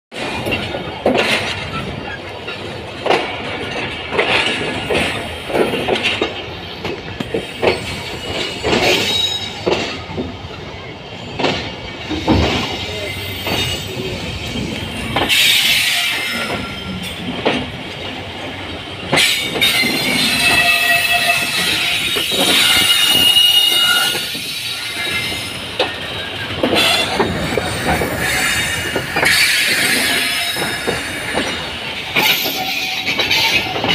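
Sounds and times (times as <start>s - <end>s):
train rumbling on rails: 0.1s - 33.9s
wheels clanking over rail joints: 0.1s - 33.9s
wheel squeal: 7.4s - 9.6s, 19.2s - 31.6s.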